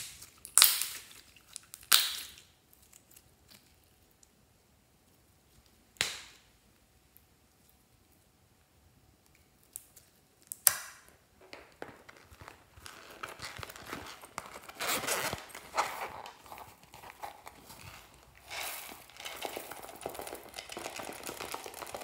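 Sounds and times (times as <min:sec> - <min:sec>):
slime crackling and crinkling: 0:09.6 - 0:22.0.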